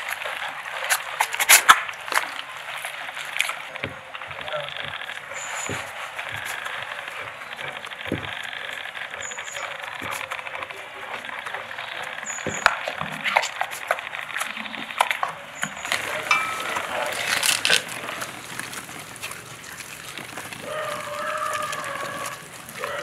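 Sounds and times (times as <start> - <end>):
faint voices: 0.0 - 23.0.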